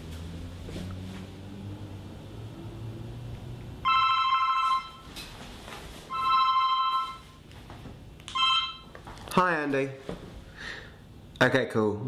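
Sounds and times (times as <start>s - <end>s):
telephone ringing: 3.8s - 5.1s, 6.1s - 7.4s, 8.3s - 9.0s.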